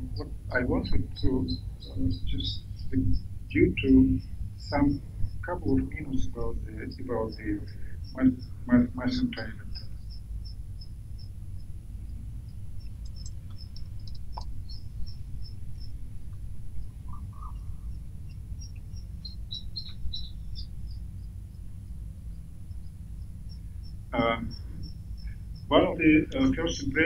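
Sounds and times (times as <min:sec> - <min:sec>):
steady low hum: 0:00.0 - 0:27.0
soft clicks: 0:12.8 - 0:14.7.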